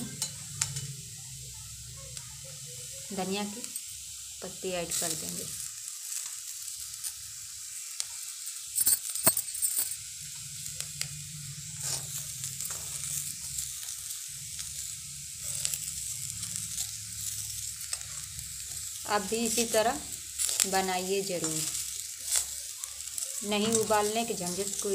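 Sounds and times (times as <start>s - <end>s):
food sizzling in oil: 0.0s - 24.9s
spatula scraping pan: 20.4s - 24.9s.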